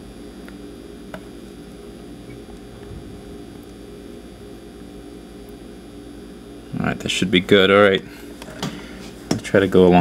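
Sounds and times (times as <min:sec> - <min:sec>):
low electrical hum: 0:00.0 - 0:10.0
soft low bump: 0:02.3 - 0:04.9.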